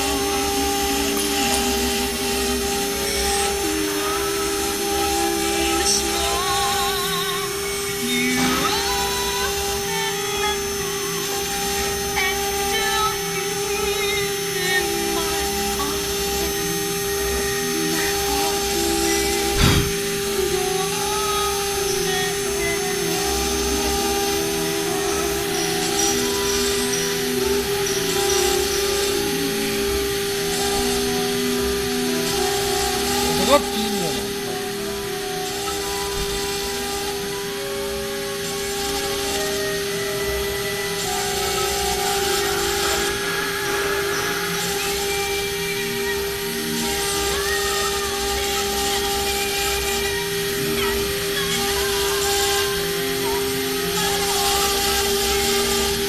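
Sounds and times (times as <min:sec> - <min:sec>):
router spindle whining: 0:00.0 - 0:56.0
bit cutting hiss: 0:00.8 - 0:37.2, 0:38.4 - 0:56.0
brief thump: 0:19.6 - 0:20.0.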